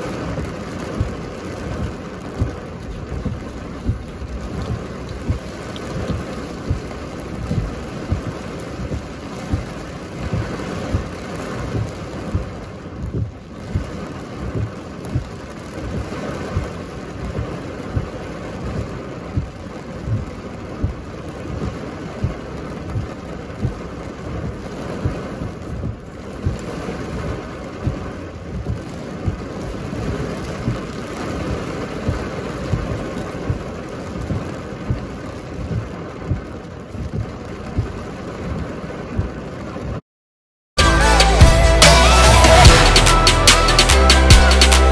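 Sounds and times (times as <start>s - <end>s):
heavy rain on car: 0.0s - 40.0s, 40.8s - 44.9s.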